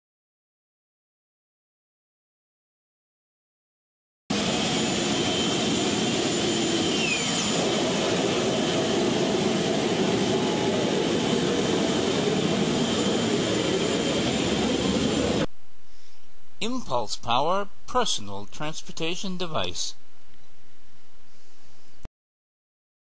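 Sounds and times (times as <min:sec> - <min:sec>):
jet engine running: 0:04.3 - 0:15.5
short falling whistle: 0:06.6 - 0:07.6.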